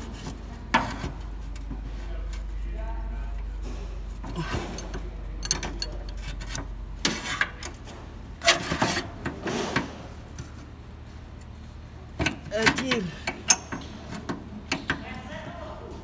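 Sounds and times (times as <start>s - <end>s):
wrenches clinking on metal: 4.4s - 6.6s.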